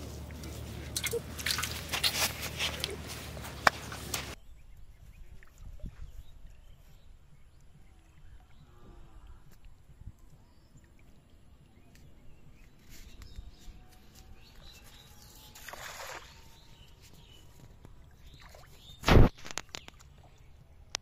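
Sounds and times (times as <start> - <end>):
net splashing into water: 0.8 - 3.0, 15.5 - 16.6, 18.2 - 20.2.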